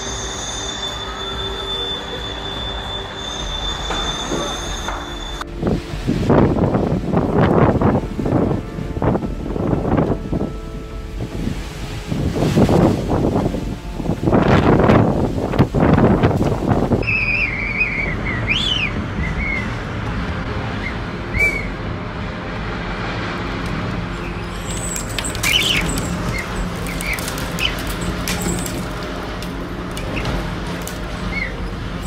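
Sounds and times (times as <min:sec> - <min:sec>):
high chirping whistles: 0:00.0 - 0:05.5, 0:17.0 - 0:19.8, 0:24.2 - 0:28.0
storm wind rushing: 0:00.0 - 0:32.0
wind buffeting microphone: 0:02.2 - 0:32.0.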